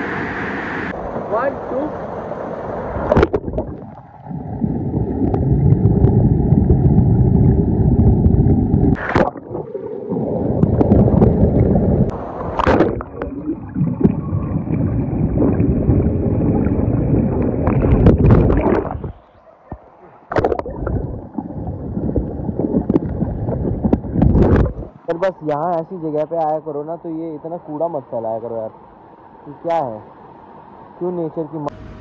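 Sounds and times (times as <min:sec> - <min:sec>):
muffled underwater water rushing: 0:00.0 - 0:25.2.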